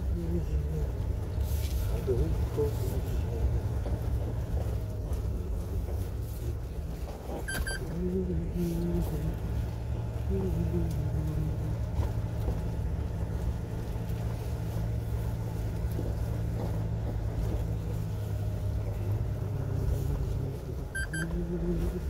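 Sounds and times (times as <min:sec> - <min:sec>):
truck engine running: 0:00.0 - 0:22.0.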